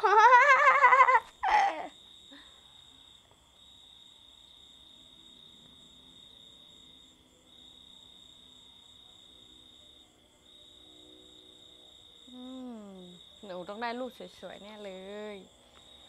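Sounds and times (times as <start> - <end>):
night insects trilling: 0.0 - 16.0.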